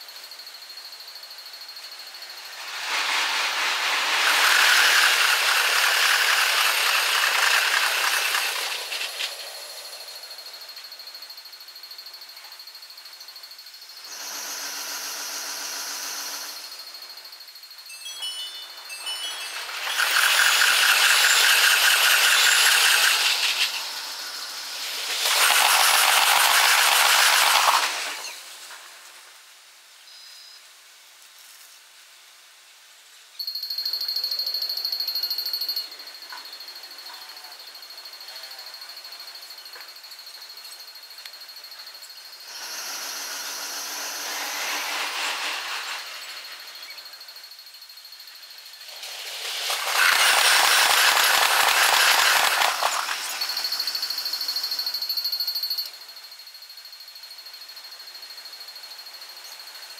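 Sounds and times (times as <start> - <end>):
electric train passing: 2.1 - 10.6, 18.1 - 28.8, 42.4 - 47.6, 48.6 - 55.3
level-crossing bell chimes: 17.9 - 19.8.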